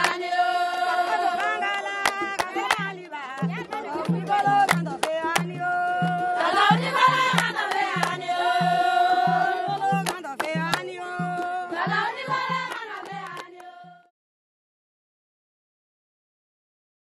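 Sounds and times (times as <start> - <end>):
sharp percussion hits: 1.0 - 13.3
person singing: 7.8 - 12.0.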